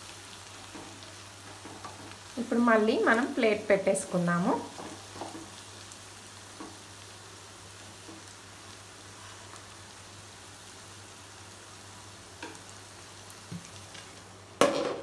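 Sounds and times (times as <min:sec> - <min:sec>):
food sizzling in pan: 0:00.0 - 0:15.0
plate clanking on pan: 0:14.6 - 0:15.0.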